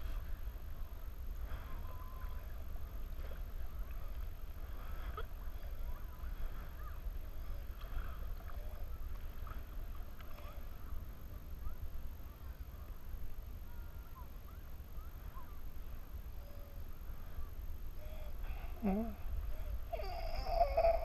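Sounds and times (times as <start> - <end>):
paddle strokes splashing water: 0.0 - 11.2
steady low rumble: 0.0 - 21.0.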